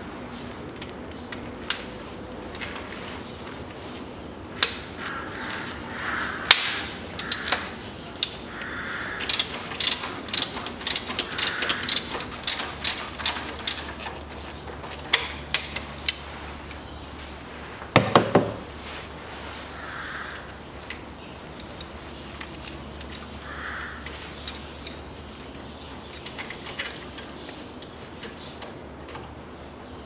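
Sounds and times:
ratchet wrench clicking: 9.2 - 14.1.

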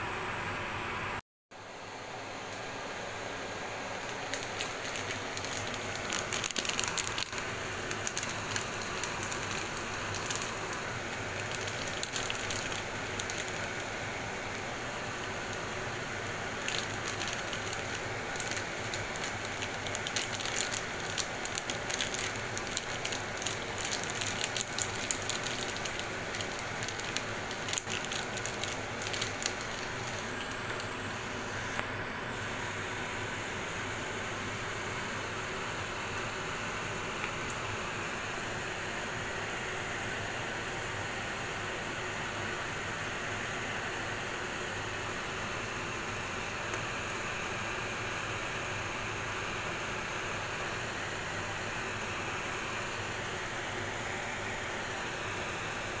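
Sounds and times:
plastic bag crinkling: 4.0 - 31.0.

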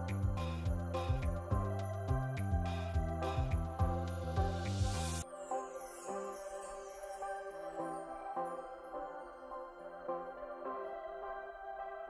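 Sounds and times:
soft ambient electronic music: 0.0 - 12.0.

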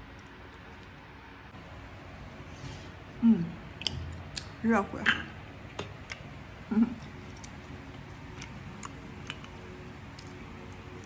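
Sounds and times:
person humming: 3.2 - 3.6
person chewing bread: 5.9 - 11.0.

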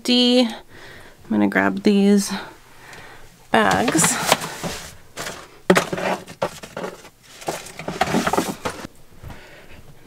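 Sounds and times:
paper bags rustling: 3.6 - 8.9.

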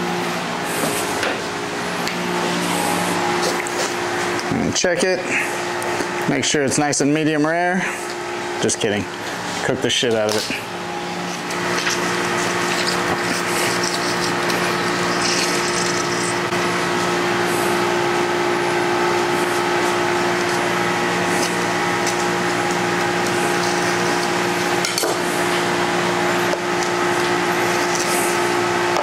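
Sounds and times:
machine hum: 0.0 - 29.0
knife and fork scraping metal tray: 11.8 - 16.4.

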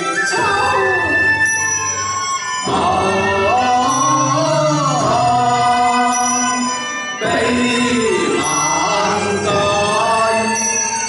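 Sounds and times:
small instrumental ensemble: 0.0 - 11.0
man singing opera: 2.6 - 11.0.

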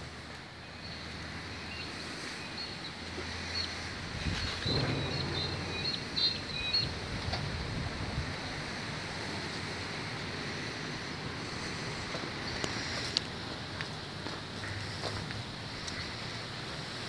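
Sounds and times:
wind buffeting microphone: 3.8 - 10.4.

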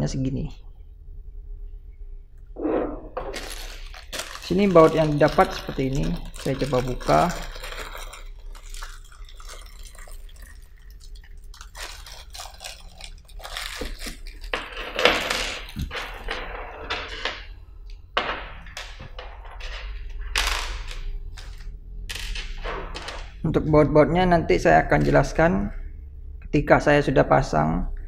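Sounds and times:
plastic packet crinkling: 3.3 - 16.4.

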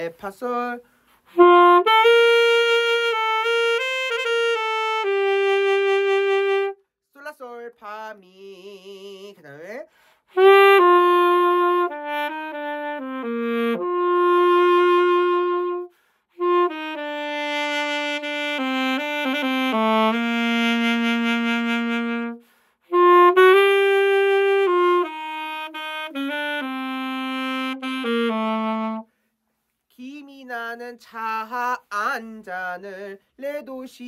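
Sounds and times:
solo saxophone melody: 1.2 - 6.9, 10.3 - 29.2.

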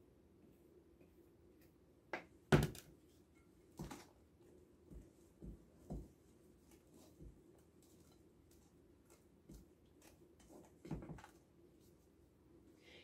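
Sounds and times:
soft irregular thumps: 4.8 - 12.2.

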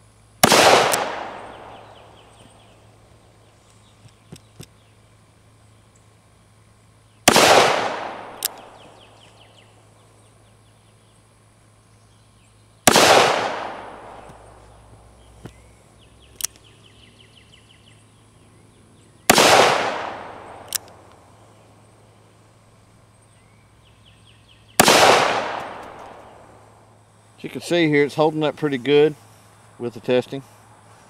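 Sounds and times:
revolver shots: 0.4 - 2.6
short sharp clicks: 8.4 - 8.8, 20.6 - 21.0.

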